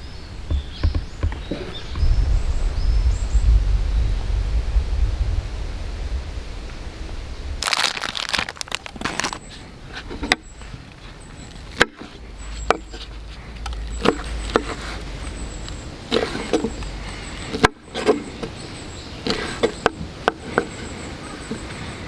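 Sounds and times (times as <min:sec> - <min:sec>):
low outdoor rumble: 0:00.0 - 0:19.3
crinkling and rustling: 0:07.6 - 0:18.3.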